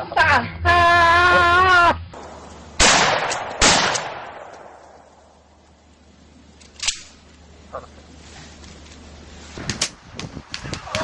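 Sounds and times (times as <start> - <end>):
man yelling: 0.0 - 2.0
echoing gunshots: 2.2 - 5.4.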